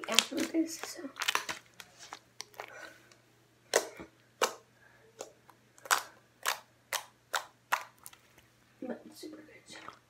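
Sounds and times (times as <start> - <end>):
slime popping and clicking: 5.2 - 8.2.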